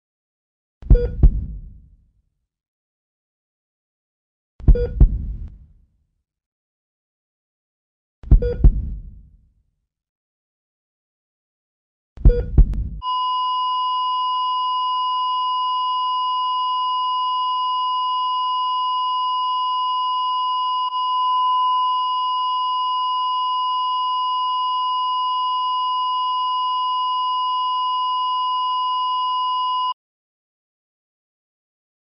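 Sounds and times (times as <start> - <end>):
flatline monitor beep: 12.3 - 30.0.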